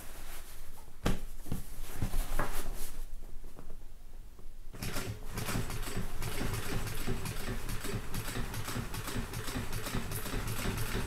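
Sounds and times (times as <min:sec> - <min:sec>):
sewing machine running: 0:04.8 - 0:11.0.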